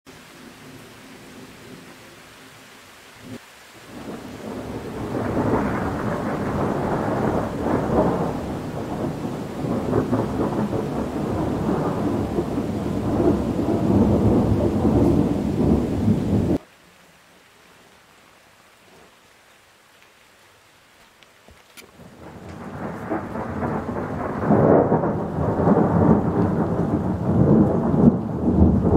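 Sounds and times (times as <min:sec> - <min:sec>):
rolling thunder: 0:03.9 - 0:16.6, 0:22.0 - 0:28.9.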